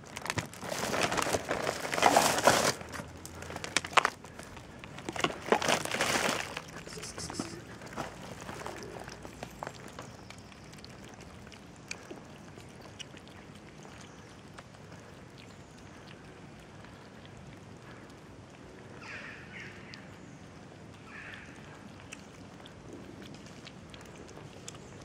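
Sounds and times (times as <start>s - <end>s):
cats chewing and lapping: 0.0s - 25.0s
brief higher-pitched sounds: 6.8s - 7.7s.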